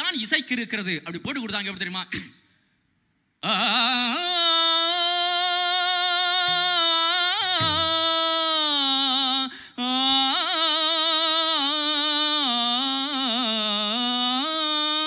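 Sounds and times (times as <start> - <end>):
man singing wordless melody: 3.4 - 15.0.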